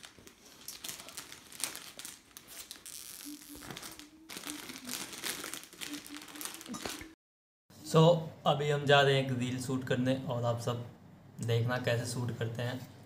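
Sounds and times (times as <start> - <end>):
plastic wrappers crinkling: 0.0 - 7.2.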